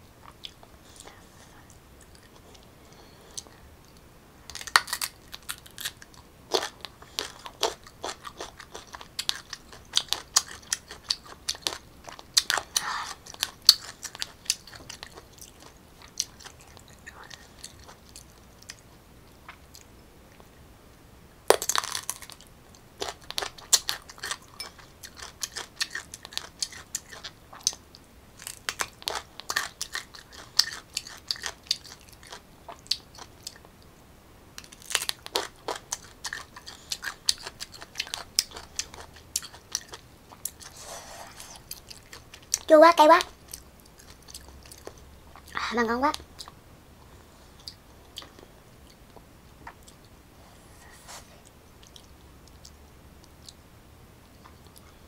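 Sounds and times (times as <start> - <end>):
crunching and chewing mango: 4.5 - 20.5, 21.5 - 33.9, 34.6 - 45.6, 46.2 - 50.2.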